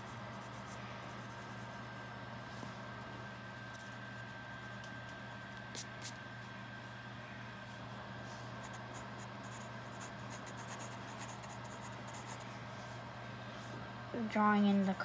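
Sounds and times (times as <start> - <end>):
low background hum: 0.0 - 15.0
pencil scratching on paper: 8.6 - 12.4.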